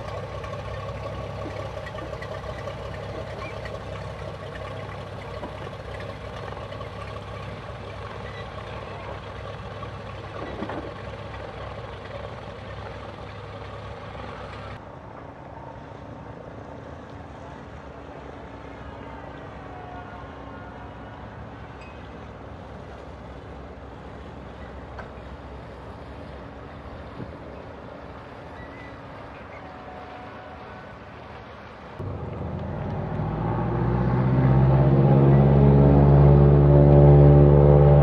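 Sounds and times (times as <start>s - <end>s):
distant propeller plane droning: 0.0s - 15.3s, 32.0s - 38.0s.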